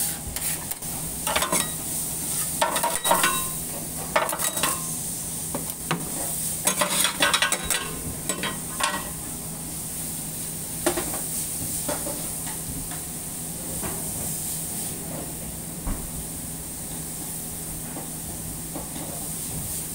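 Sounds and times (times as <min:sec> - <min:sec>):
oil sizzling on a griddle: 0:00.0 - 0:15.0, 0:16.2 - 0:19.9
metal clicks and scrapes on griddle: 0:00.4 - 0:03.6, 0:04.2 - 0:04.9, 0:06.6 - 0:09.1.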